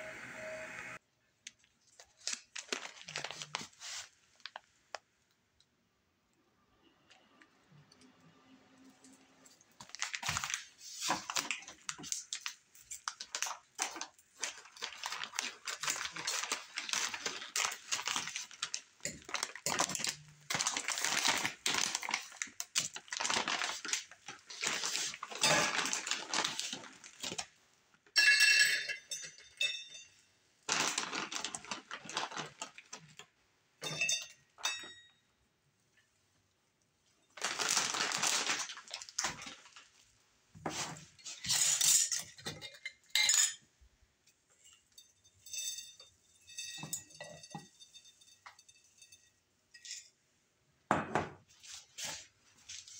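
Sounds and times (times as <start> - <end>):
aluminium foil crinkling: 1.4 - 5.1, 9.4 - 27.6, 30.7 - 33.3, 37.3 - 42.9, 51.5 - 52.9.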